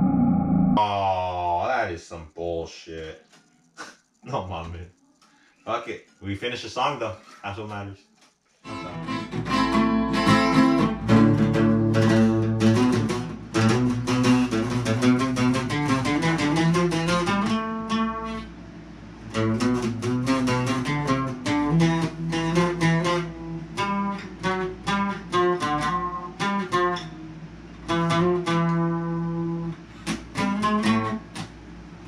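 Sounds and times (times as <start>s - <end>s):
acoustic guitar picking: 8.6s - 18.6s, 19.2s - 31.6s.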